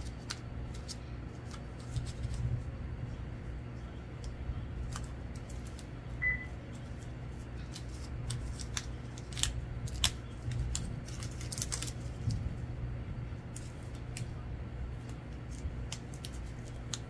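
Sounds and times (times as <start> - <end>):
steady low hum: 0.0 - 17.0
brief high beep: 6.2 - 6.5.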